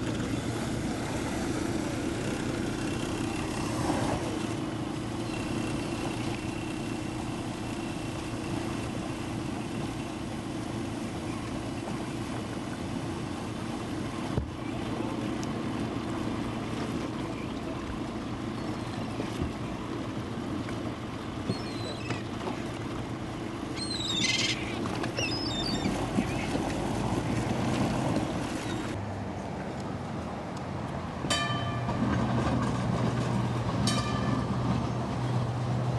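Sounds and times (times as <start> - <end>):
motorboat engine humming: 0.0 - 35.9
propeller churning water: 0.0 - 35.9.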